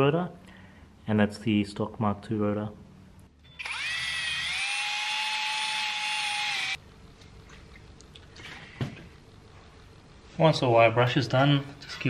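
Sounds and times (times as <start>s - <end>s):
rotary tool wire brush whining: 3.5s - 6.8s.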